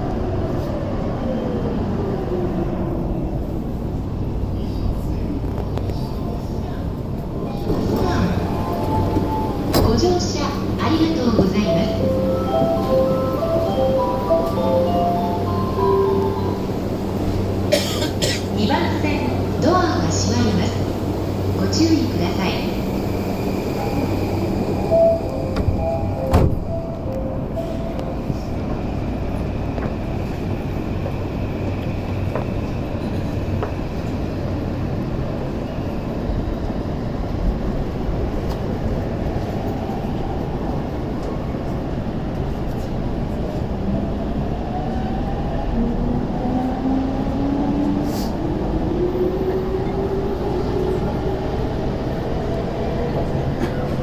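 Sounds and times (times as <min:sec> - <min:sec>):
train car interior hum: 0:02.6 - 0:44.9, 0:45.7 - 0:54.0.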